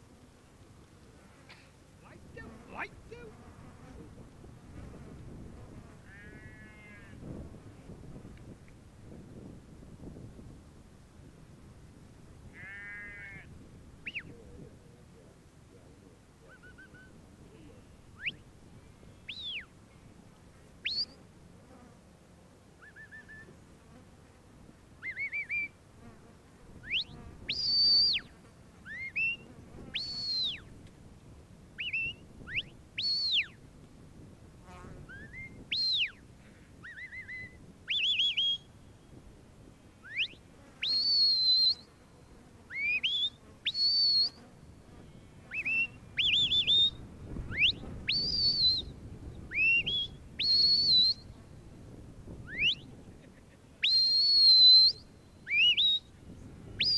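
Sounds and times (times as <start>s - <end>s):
short sharp whistles: 14.1s - 14.3s, 19.3s - 19.7s, 20.8s - 21.2s, 22.8s - 23.5s, 26.9s - 28.2s, 30.0s - 30.6s, 31.8s - 33.5s, 35.1s - 36.2s, 36.9s - 38.7s, 40.1s - 41.9s, 42.7s - 44.4s, 45.5s - 48.9s, 49.6s - 51.3s, 52.5s - 52.9s, 53.8s - 56.1s.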